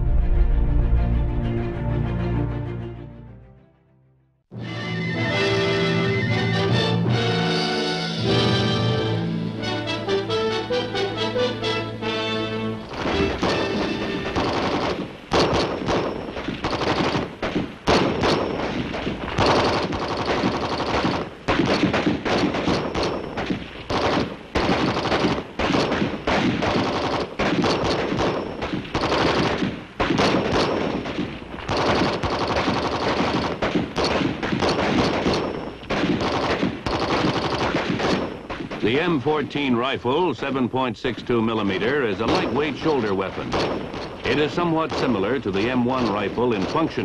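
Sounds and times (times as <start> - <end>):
dense rifle and automatic gunfire: 12.8 - 39.2, 41.8 - 47.0.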